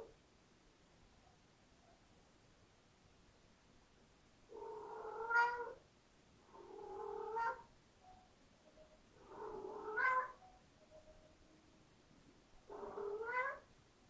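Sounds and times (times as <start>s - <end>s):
kitten meowing: 5.2s - 5.8s, 9.4s - 10.4s, 12.7s - 13.7s.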